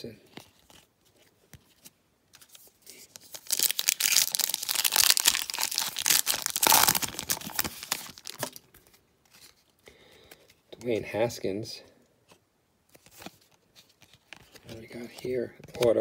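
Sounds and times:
foil wrapper tearing and crinkling: 3.0 - 8.6.

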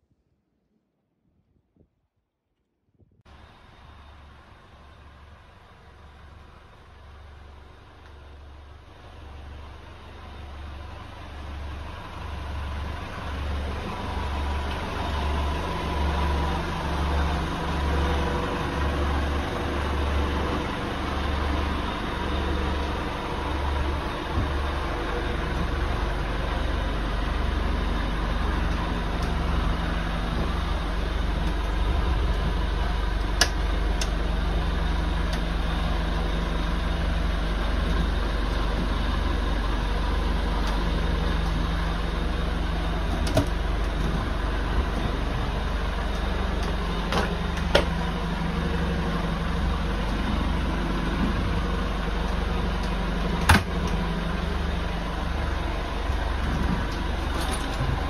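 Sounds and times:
low pulsing motor drone: 3.2 - 58.0.

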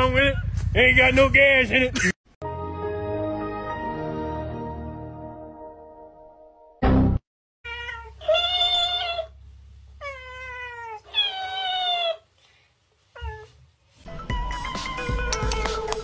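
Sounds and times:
cat meowing: 7.7 - 9.4, 10.0 - 12.3.

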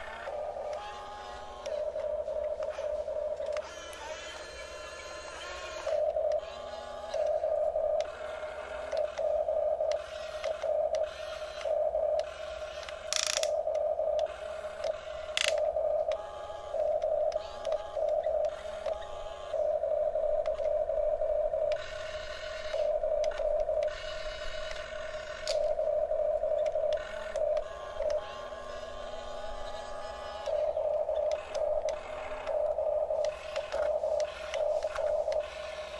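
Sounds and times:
electric gear motors whining: 0.0 - 35.9
sharp clicks: 8.0 - 16.2, 26.6 - 28.4.

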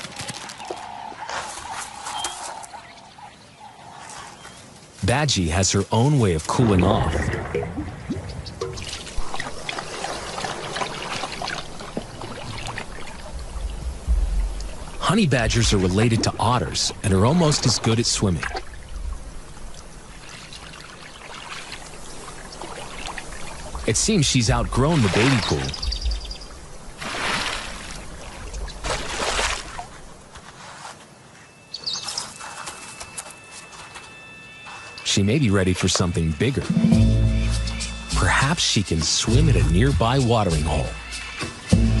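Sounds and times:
water drips and slaps: 5.7 - 30.4
water splashing in a paddling pool: 6.8 - 30.3
loud low thump: 13.8 - 14.8.

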